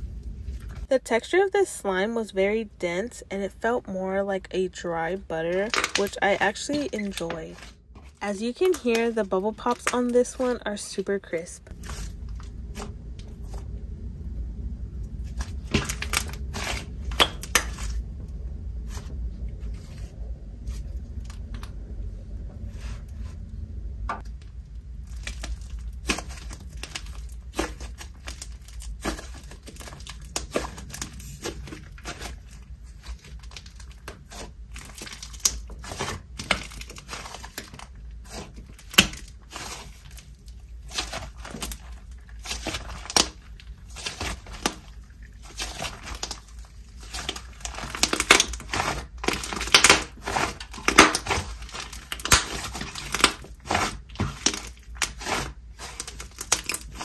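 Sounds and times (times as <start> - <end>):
slime popping and crackling: 5.4 - 10.6, 24.2 - 57.0.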